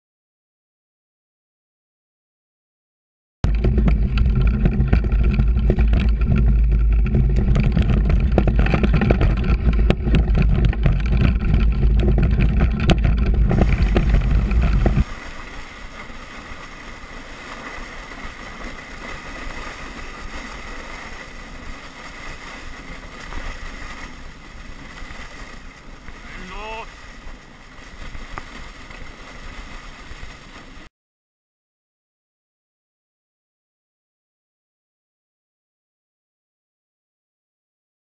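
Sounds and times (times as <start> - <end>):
knocks and rattles: 3.4 - 15.1
motorcycle engine running hard: 3.5 - 15.1
runners sliding on snow: 3.5 - 30.9
wind rushing: 5.0 - 15.6.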